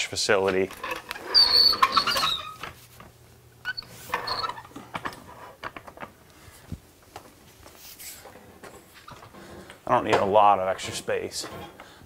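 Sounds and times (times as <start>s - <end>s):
jack wheels squeaking and rattling: 0.7s - 2.8s, 3.6s - 5.6s.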